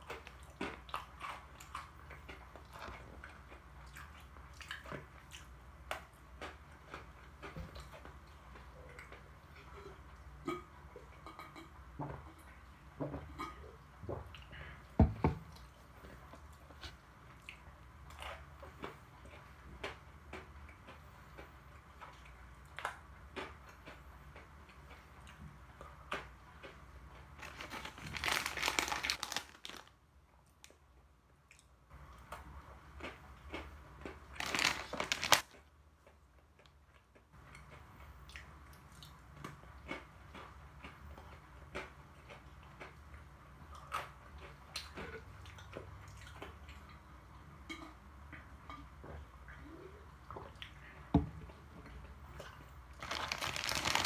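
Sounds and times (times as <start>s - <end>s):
crunching and chewing: 0.0s - 11.5s, 15.5s - 30.0s, 31.5s - 47.1s, 51.5s - 54.0s
plastic packaging rustling: 27.4s - 29.9s, 34.4s - 35.5s, 53.0s - 54.0s.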